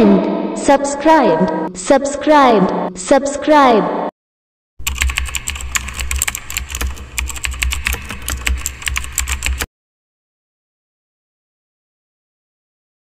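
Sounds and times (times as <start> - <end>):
keyboard key clicks: 4.9 - 9.7.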